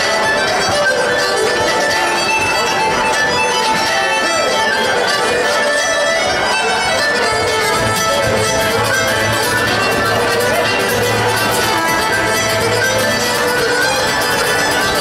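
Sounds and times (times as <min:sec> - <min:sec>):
button accordion: 0:00.0 - 0:15.0
fiddle: 0:00.0 - 0:15.0.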